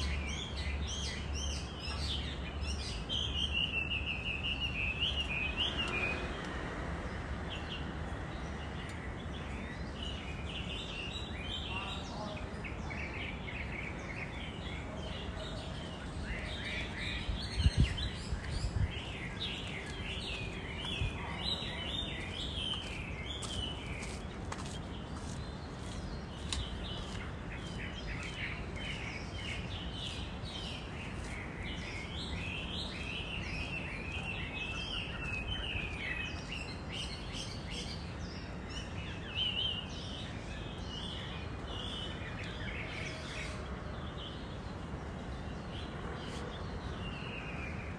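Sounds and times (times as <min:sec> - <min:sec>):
birds chirping: 0:00.0 - 0:47.9.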